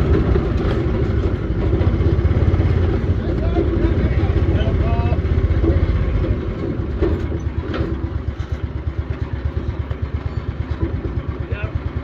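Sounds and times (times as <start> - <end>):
small motorcycle engine puttering: 5.5 - 12.0.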